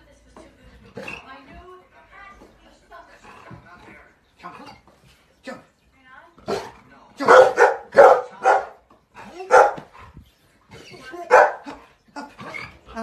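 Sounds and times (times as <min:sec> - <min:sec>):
dog barking: 0:07.2 - 0:08.8, 0:09.4 - 0:09.9, 0:11.3 - 0:11.8.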